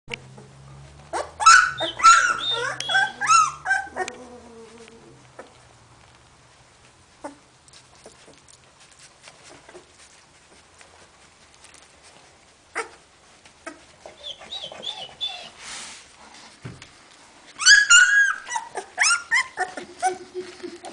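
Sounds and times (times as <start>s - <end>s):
puppies rustling on blanket: 0.6s - 20.9s
puppies squeaking and whimpering: 1.1s - 4.8s, 13.6s - 15.6s, 17.6s - 20.9s.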